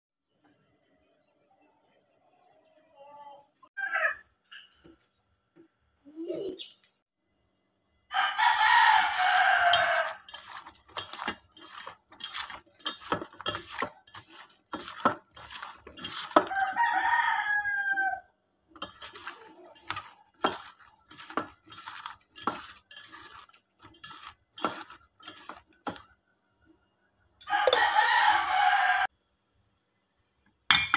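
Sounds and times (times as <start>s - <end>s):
rooster crowing: 8.1s - 10.3s, 16.4s - 18.3s, 27.4s - 29.1s
eggplant clattering in steel bowl: 8.9s - 17.0s, 18.8s - 26.2s.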